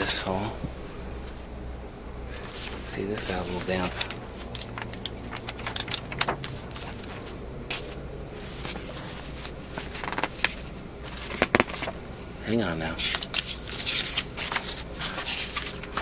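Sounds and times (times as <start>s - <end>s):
paper rustling and page flicks: 2.4s - 12.0s, 13.0s - 16.0s.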